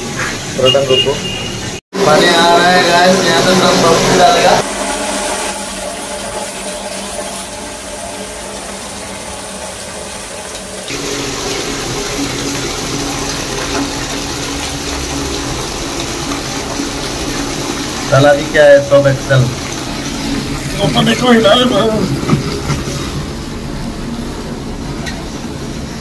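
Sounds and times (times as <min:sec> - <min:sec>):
tap water pouring into bucket: 0:02.8 - 0:26.0.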